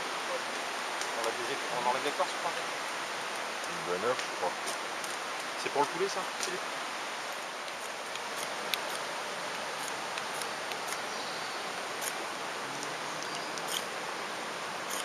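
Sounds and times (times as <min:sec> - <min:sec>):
river rushing: 0:00.0 - 0:15.0
knife scraping ferrocerium rod: 0:13.3 - 0:13.9.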